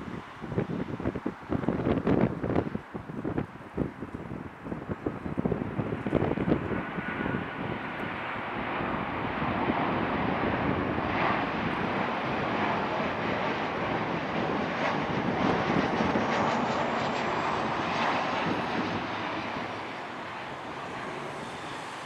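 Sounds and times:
jet engines roaring: 4.3 - 22.0.

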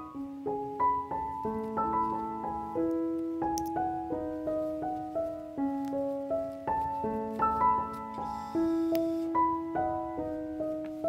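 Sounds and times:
piano music: 0.0 - 11.0.

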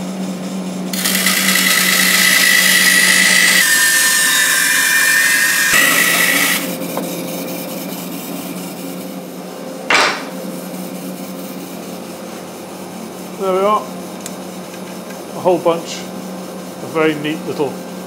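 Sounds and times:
bandsaw humming unloaded: 0.9 - 6.8
bandsaw cutting wood: 0.9 - 7.0.

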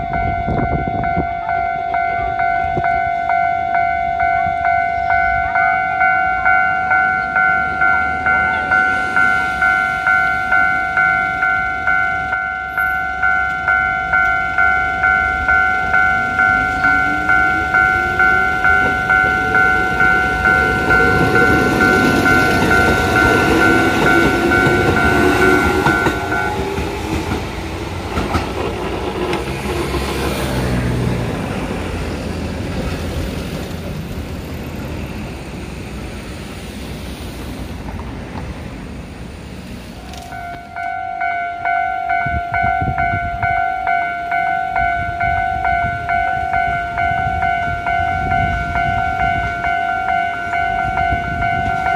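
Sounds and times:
level crossing bell ringing: 0.0 - 26.8, 40.3 - 51.9
electric train motors whining: 0.1 - 51.9
train wheels clacking on rail joints: 6.8 - 35.4.

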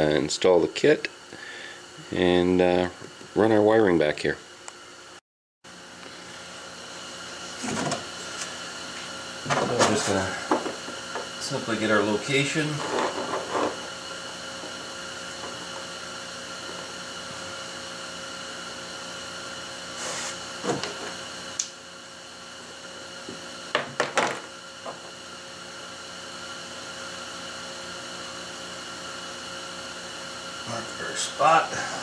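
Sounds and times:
workshop hum: 0.0 - 32.0.

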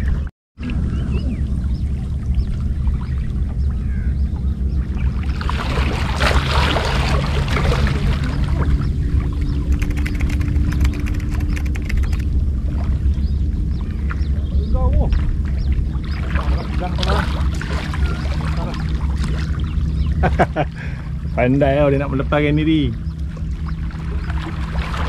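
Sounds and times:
faint steady hum: 0.0 - 25.0
wind rumble on microphone: 0.0 - 25.0
seawater splashing: 4.8 - 14.4, 15.0 - 25.0
fast faint ticks: 9.7 - 12.3.

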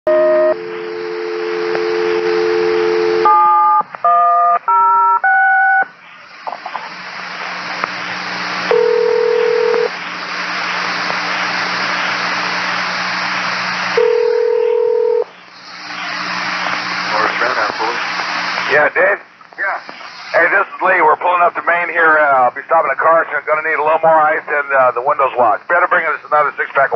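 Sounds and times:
radio hiss: 0.1 - 3.3, 5.8 - 26.9
dial tone: 0.1 - 5.8, 8.7 - 9.9, 14.0 - 15.2.

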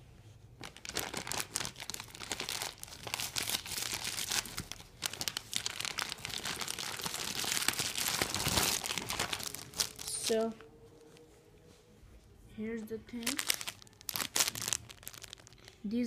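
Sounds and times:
plastic packaging crinkling: 0.6 - 11.2, 13.1 - 15.8.

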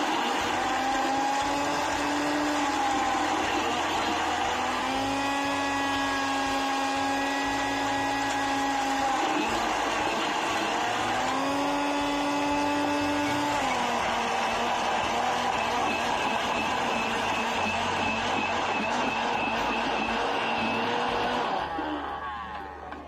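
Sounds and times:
electric blender motor whining: 0.0 - 23.0.

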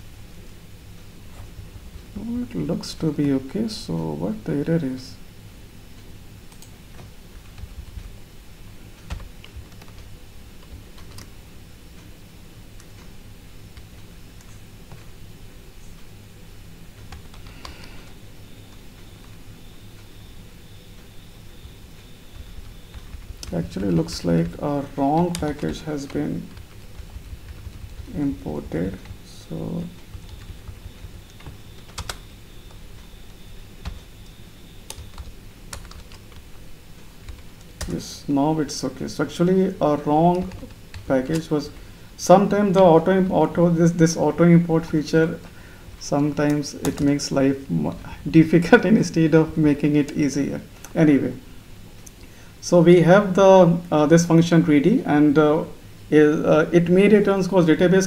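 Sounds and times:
low steady hum: 0.0 - 58.0
keyboard typing: 6.0 - 8.2, 9.0 - 11.4, 16.9 - 36.6, 40.2 - 41.9, 46.2 - 47.3.

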